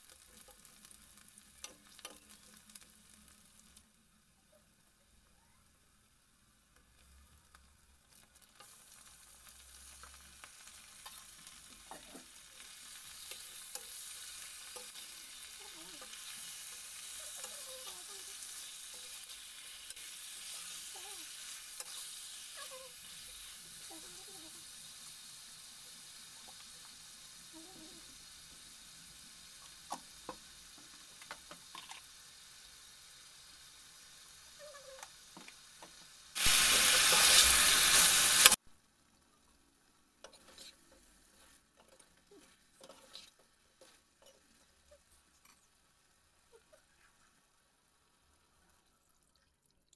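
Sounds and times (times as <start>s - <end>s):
chicken sizzling in hot oil: 0.0s - 49.1s
loud hiss: 36.3s - 38.6s
spoon scraping a steel pan: 40.2s - 40.9s, 42.4s - 44.4s.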